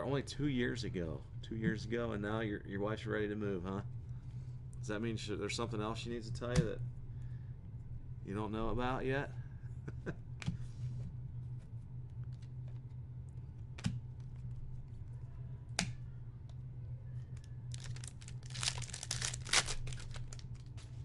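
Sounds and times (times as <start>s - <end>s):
card packaging crinkling and tearing: 17.7s - 21.0s.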